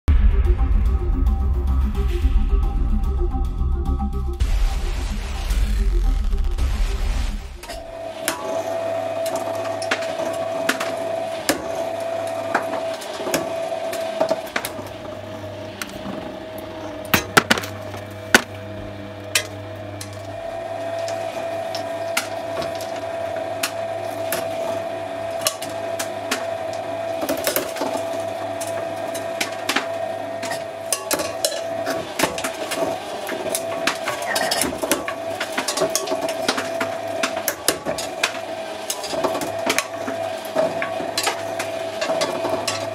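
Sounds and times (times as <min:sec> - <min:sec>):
shredder motor hum and whine: 0:00.4 - 0:42.9
plastic cracking in shredder: 0:05.5 - 0:42.9.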